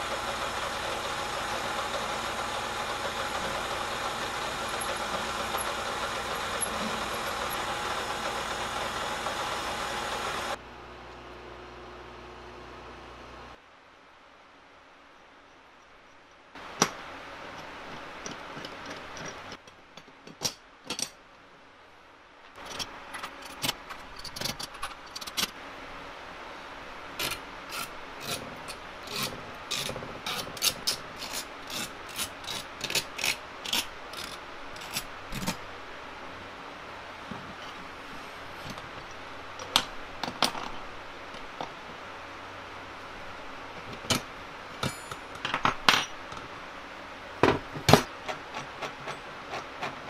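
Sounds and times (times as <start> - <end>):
steel parts clinking and knocking: 44.8 - 46.2.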